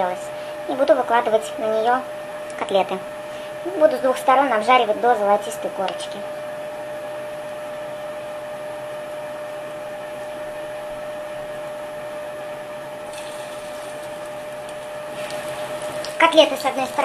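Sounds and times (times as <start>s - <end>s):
air grill fan whirring: 0.0s - 17.0s
fish frying in hot oil: 13.0s - 17.0s.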